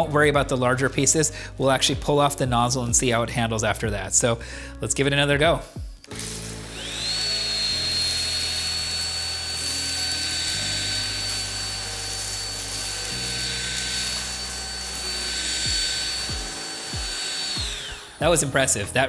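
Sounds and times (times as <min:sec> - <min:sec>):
background music: 0:00.0 - 0:19.0
vacuum cleaner motor whine: 0:06.0 - 0:19.0.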